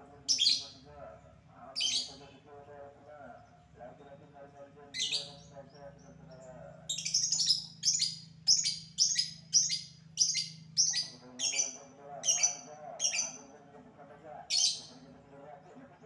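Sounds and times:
lovebird sharp high calls: 6.9s - 13.4s, 14.5s - 14.9s.

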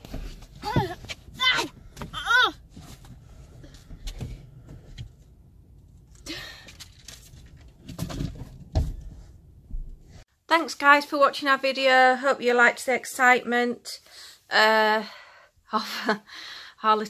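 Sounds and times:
soft knocks and thumps: 0.0s - 5.2s, 7.7s - 10.2s.

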